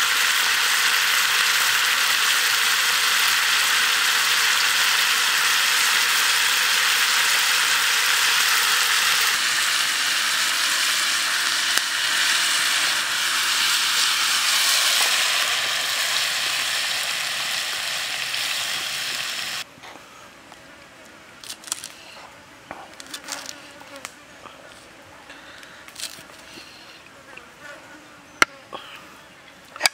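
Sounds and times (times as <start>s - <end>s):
loud steady hiss: 0.0s - 19.7s.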